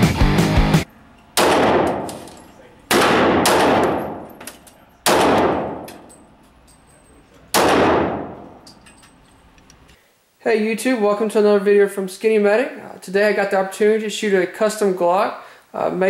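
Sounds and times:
pistol shots echoing indoors: 1.3 - 6.3, 7.5 - 8.6.

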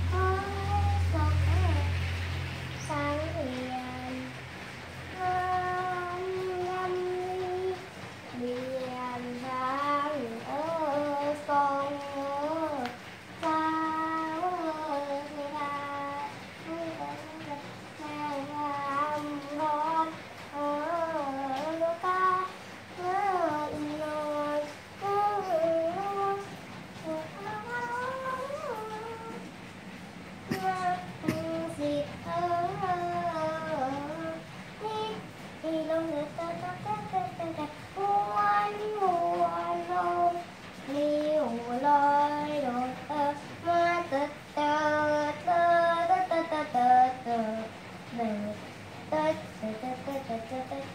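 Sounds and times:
child singing: 0.0 - 2.0, 2.7 - 4.5, 5.1 - 29.5, 30.5 - 50.9
boy humming a melody: 8.4 - 29.5, 30.5 - 48.6.

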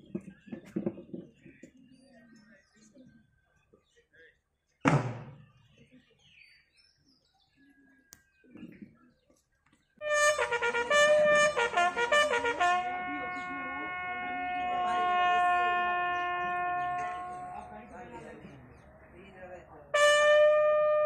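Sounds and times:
brass bugle call: 10.0 - 18.2, 19.9 - 21.0.

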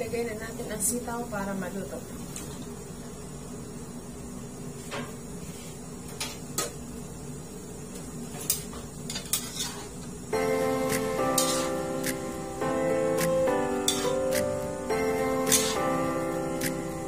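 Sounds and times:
soft frying sizzle: 0.0 - 17.0
background music: 10.4 - 17.0.

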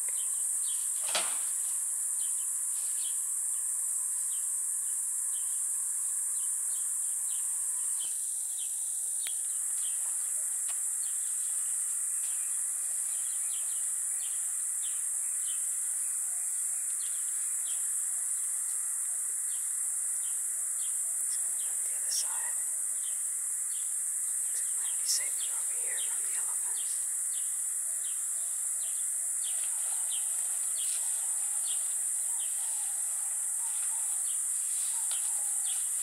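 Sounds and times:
insects droning: 0.0 - 36.0
bird chirps: 24.5 - 36.0.

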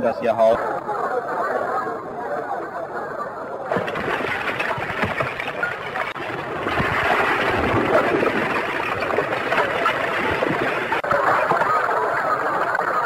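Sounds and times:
rock blocks tumbling knocks: 3.7 - 11.8
lava flow rushing rumble: 3.7 - 12.9.

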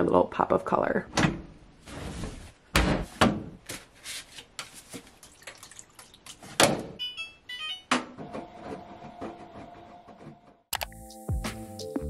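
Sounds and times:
washing machine door thud: 6.6 - 7.0.

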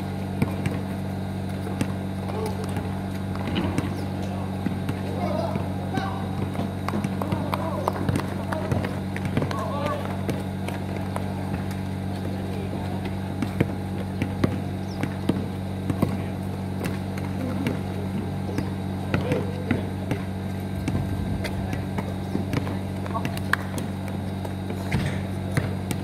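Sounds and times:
basketball bouncing on concrete: 0.0 - 26.0
steady low hum: 0.0 - 26.0
players shouting: 2.1 - 13.6.

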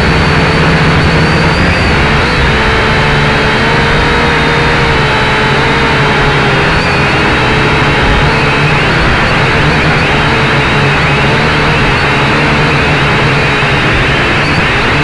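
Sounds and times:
drone propellers buzzing: 0.0 - 15.0.

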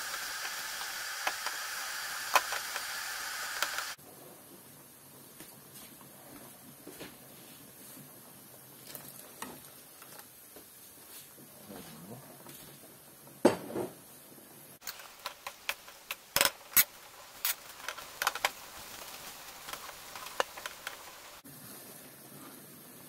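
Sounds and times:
frying pan clicks and pops: 0.1 - 4.0, 14.8 - 21.2.

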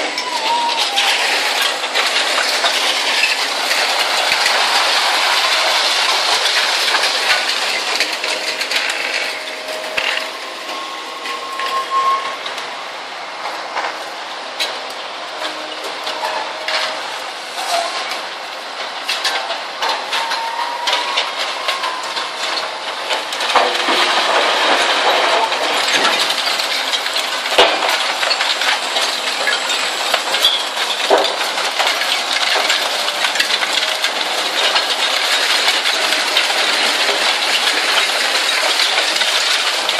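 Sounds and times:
metallic squeals: 0.0 - 1.9, 8.1 - 12.9
shredder crunching scrap metal: 0.0 - 12.7, 13.5 - 39.9.

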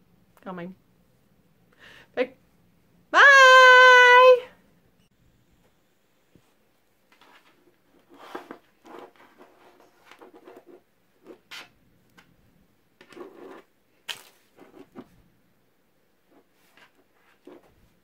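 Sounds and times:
rustling and scratching handling noises: 6.3 - 11.8, 13.0 - 15.3, 16.2 - 18.0.

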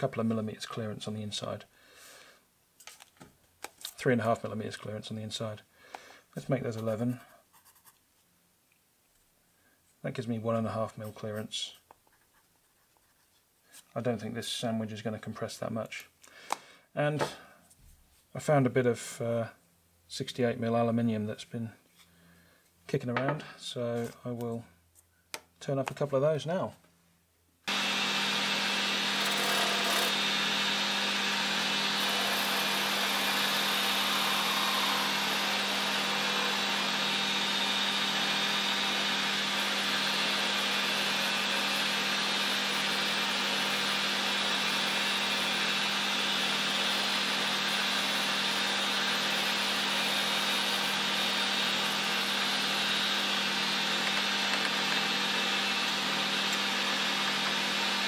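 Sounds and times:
metal lathe running: 27.7 - 58.0.

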